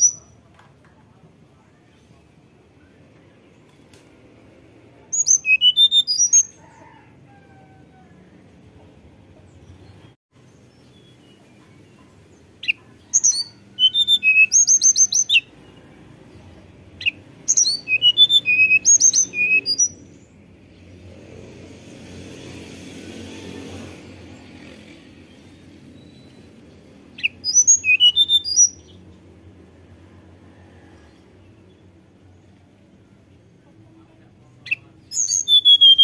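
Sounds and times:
bird singing high whistled notes: 0:05.1 - 0:06.6, 0:12.6 - 0:15.5, 0:17.0 - 0:20.2, 0:27.1 - 0:29.0, 0:34.7 - 0:36.0.

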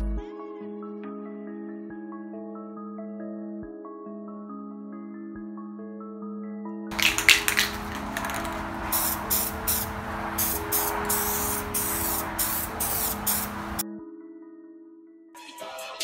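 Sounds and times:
background music: 0:00.0 - 0:09.4, 0:10.0 - 0:16.0
spray paint can hissing: 0:06.9 - 0:13.8.

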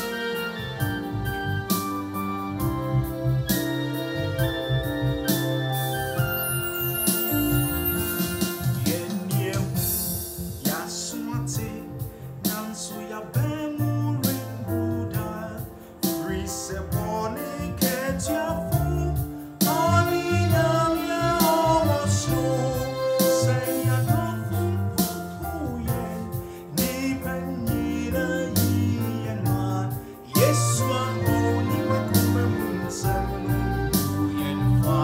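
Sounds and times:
electronic keyboard: 0:00.0 - 0:35.0
man singing: 0:08.6 - 0:35.0
steady drum beat: 0:17.8 - 0:35.0.

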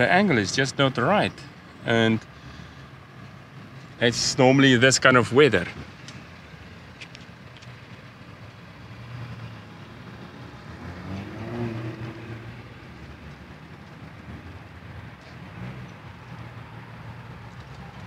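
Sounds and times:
distant engine hum: 0:00.0 - 0:18.0.

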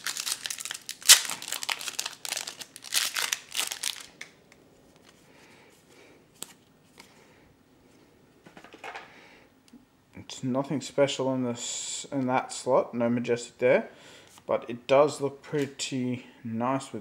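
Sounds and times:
foil wrapper crinkling: 0:00.0 - 0:04.3.

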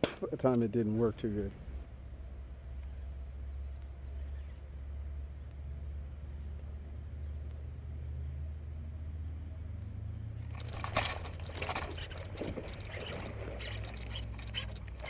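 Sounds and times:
fish thrashing and splashing: 0:10.5 - 0:15.0.

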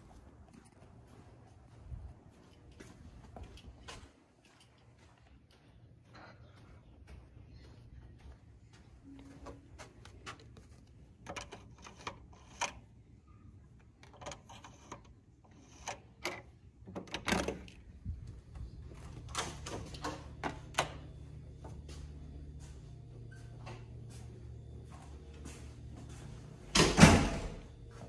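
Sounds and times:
low steady hum: 0:00.0 - 0:28.0
door lock clicks and knocks: 0:15.6 - 0:17.8.

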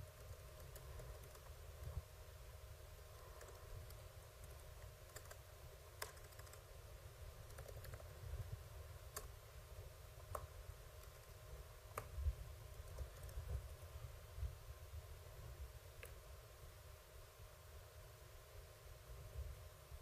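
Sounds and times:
keyboard typing: 0:00.0 - 0:01.9, 0:03.1 - 0:06.7, 0:07.4 - 0:08.3, 0:10.2 - 0:13.8.

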